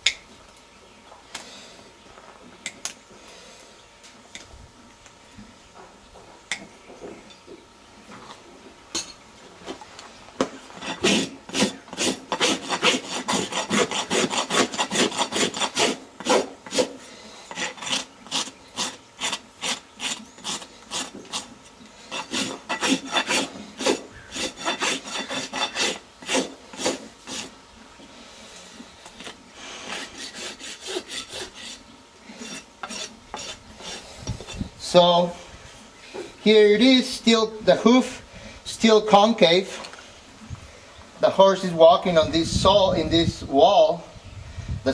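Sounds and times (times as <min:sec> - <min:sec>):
rasp strokes on hoof: 0:09.7 - 0:35.3.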